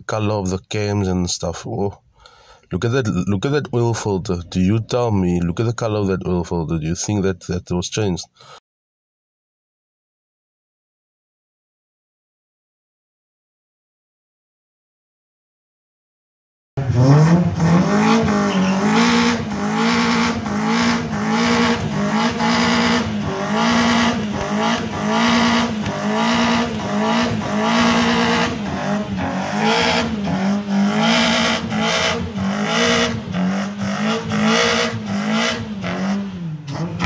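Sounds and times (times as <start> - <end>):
car engine revving: 16.8 - 37.0.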